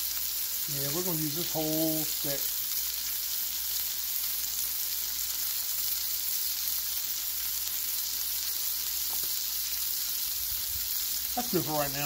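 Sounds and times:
meat and squash sizzling on griddle: 0:00.0 - 0:12.0.

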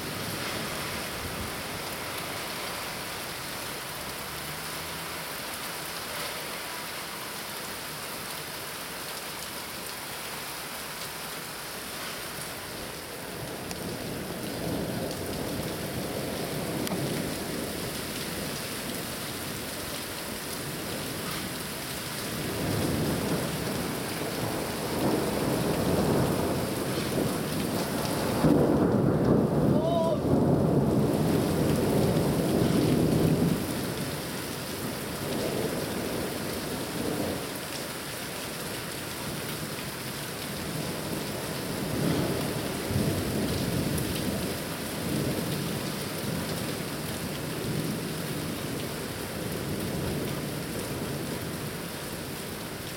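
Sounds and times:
steady rain: 0:00.0 - 0:52.9
rolling thunder: 0:22.2 - 0:34.1.

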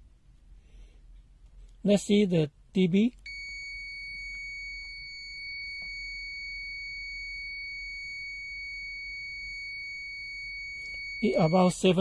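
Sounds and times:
multimeter continuity beep: 0:03.2 - 0:12.0.

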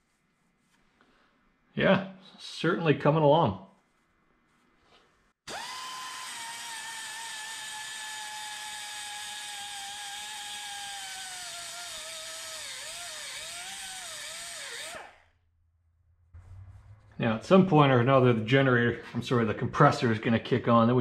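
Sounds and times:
pneumatic die grinder whining: 0:05.5 - 0:15.3.

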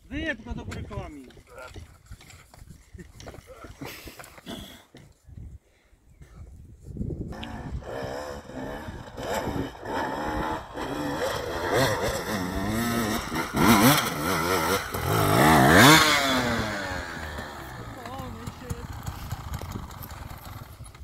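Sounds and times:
dirt bike engine revving: 0:07.3 - 0:21.0.

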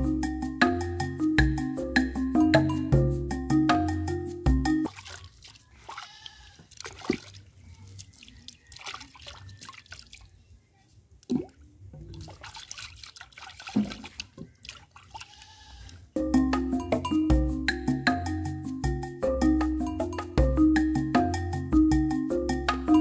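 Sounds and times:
water sloshing and splashing: 0:04.8 - 0:10.5, 0:11.2 - 0:15.7.

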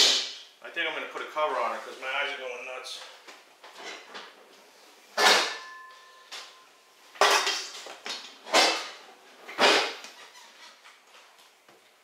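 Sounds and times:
metal bowls clanking and knocking: 0:05.2 - 0:06.6.

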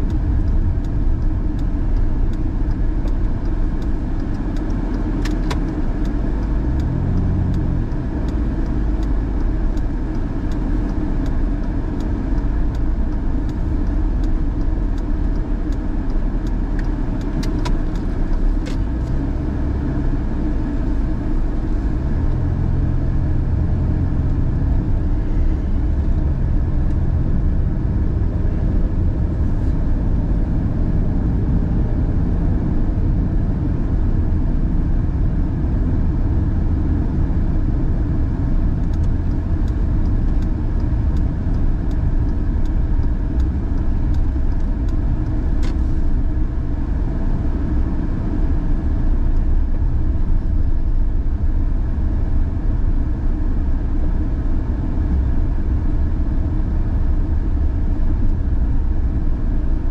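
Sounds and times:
tyre and engine rumble: 0:00.0 - 0:59.9.

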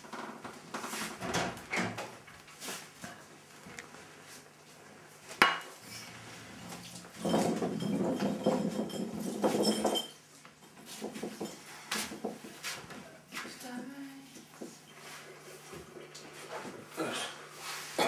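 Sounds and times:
glass bottles and dishes clattering: 0:07.1 - 0:11.6.

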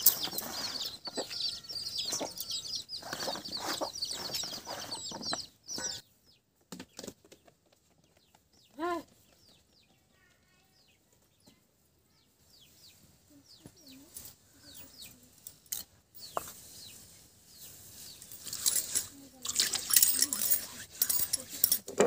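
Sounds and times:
chicks peeping: 0:00.0 - 0:11.6, 0:12.2 - 0:15.3
hen clucking: 0:00.1 - 0:06.0.

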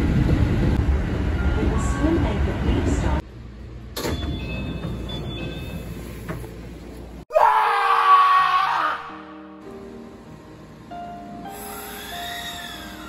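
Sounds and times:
person screaming: 0:07.3 - 0:09.3.

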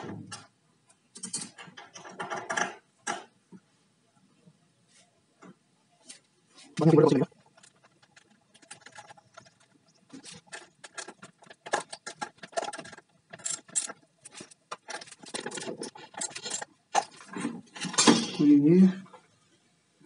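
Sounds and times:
metallic clicks and rattles: 0:01.1 - 0:03.3, 0:07.4 - 0:18.2.

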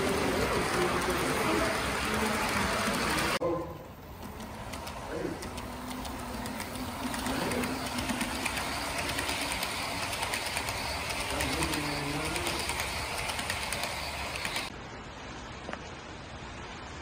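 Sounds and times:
model train wheels whirring: 0:00.0 - 0:14.7
light clicking on track: 0:04.2 - 0:14.7.

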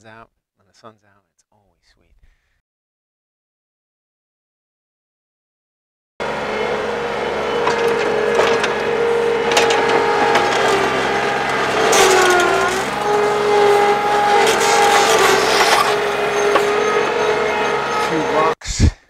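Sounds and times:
loader engine running hard: 0:06.2 - 0:18.6
machine clanking: 0:06.2 - 0:18.6.

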